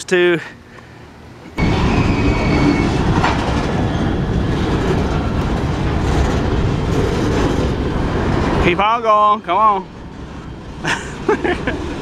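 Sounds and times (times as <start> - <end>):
freight train rolling past: 1.1 - 12.0
steel wheels clattering on rails: 1.6 - 8.6.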